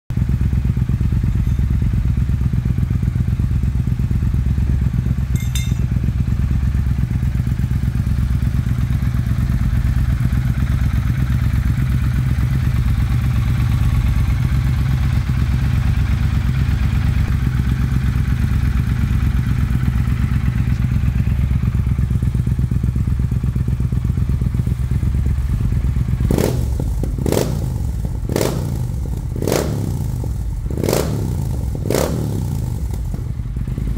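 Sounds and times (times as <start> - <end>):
motorcycle engine idling: 0.1 - 33.9
motorcycle throttle blips: 0.7 - 3.1, 4.8 - 6.8, 19.0 - 23.1.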